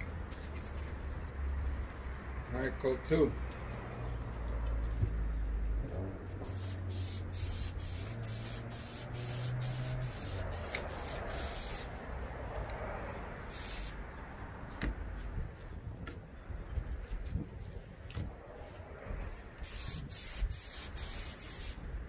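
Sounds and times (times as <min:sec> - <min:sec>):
aerosol can spraying: 0:06.4 - 0:11.9, 0:13.5 - 0:14.0, 0:19.6 - 0:21.8.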